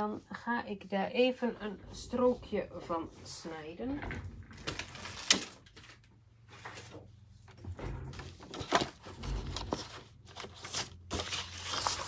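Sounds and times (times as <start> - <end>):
rustling of card and paper: 4.6 - 7.0, 8.2 - 12.0.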